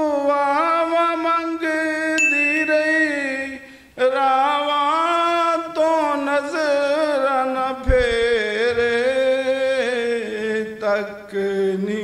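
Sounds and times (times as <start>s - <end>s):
man chanting: 0.0s - 12.0s
high chime-like tone: 2.2s - 3.8s.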